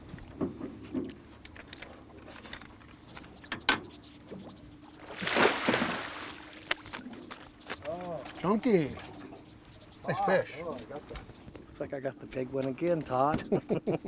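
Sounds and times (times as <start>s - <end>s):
knocks and clicks on boat: 0.0s - 4.6s
fish splashing in water: 5.0s - 7.4s.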